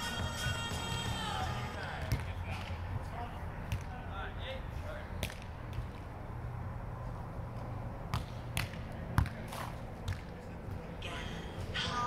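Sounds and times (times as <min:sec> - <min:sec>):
hands slapping volleyball: 0:05.2 - 0:05.9, 0:08.1 - 0:10.4.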